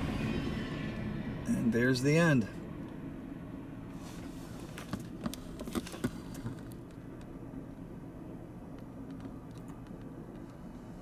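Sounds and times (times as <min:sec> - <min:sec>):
freight train rumbling on rails: 0:00.0 - 0:01.7.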